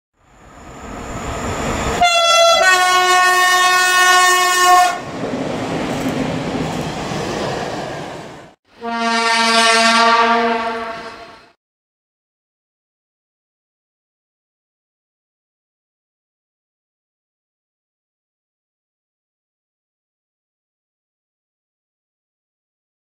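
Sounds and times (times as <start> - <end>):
train rushing by: 0.2 - 8.6
locomotive horn: 2.0 - 5.0, 8.7 - 11.5.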